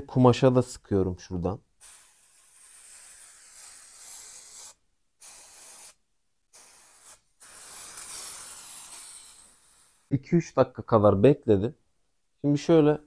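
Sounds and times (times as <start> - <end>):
aerosol spray can hissing: 1.8 - 10.1.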